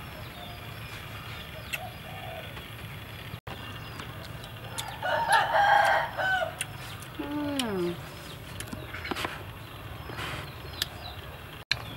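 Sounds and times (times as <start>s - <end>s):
small birds chirping: 0.0s - 11.9s
dove cooing: 1.8s - 2.5s.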